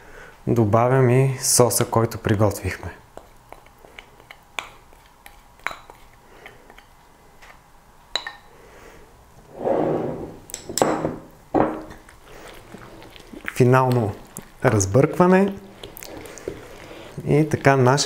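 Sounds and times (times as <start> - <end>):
wooden spoon scraping ceramic bowl: 9.5 - 10.5.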